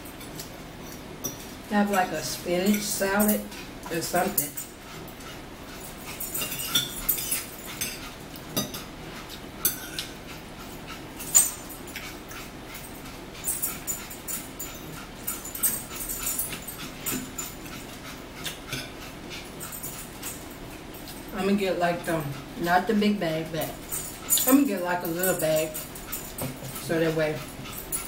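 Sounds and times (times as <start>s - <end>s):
forks scraping on plates: 0.1s - 21.4s.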